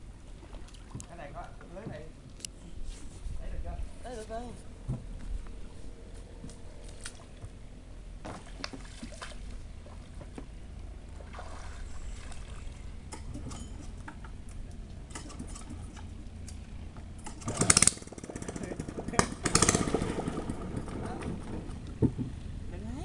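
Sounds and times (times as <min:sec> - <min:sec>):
water sloshing and trickling: 0:00.0 - 0:02.3, 0:06.4 - 0:17.5
low steady rumble: 0:00.0 - 0:23.0
small splashes: 0:06.8 - 0:07.5, 0:08.2 - 0:10.4, 0:11.0 - 0:13.1.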